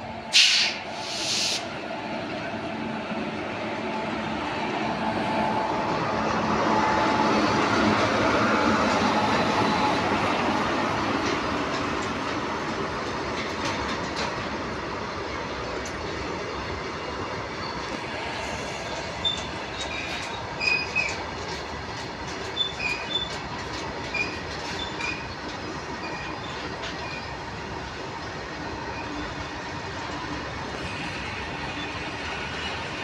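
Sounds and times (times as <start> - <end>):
train wheels rumbling on rails: 0.0 - 33.0
wheels clacking over rail joints: 6.0 - 18.2, 18.9 - 33.0
wheels squealing: 18.7 - 21.2, 22.5 - 23.4, 24.1 - 25.4.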